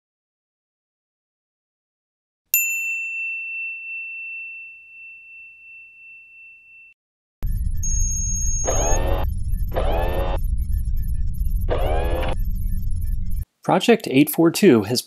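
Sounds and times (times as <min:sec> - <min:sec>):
bell-like ding: 0:02.6 - 0:07.0.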